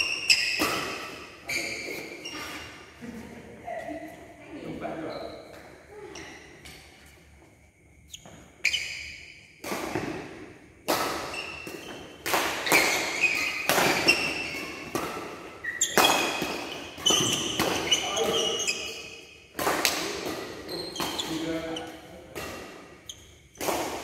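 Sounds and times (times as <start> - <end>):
racket hitting shuttlecock: 0.0 - 2.2, 8.2 - 24.0
high ringing squeaks: 0.0 - 2.8, 8.1 - 9.6, 15.6 - 19.5, 20.6 - 22.0.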